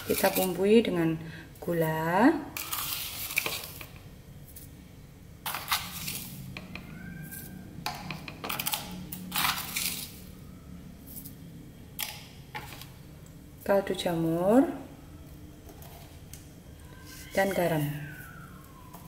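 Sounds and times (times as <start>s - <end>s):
spoon scooping powder: 0.0s - 0.6s, 2.6s - 4.7s, 5.5s - 8.7s
faint low hum: 6.2s - 19.0s.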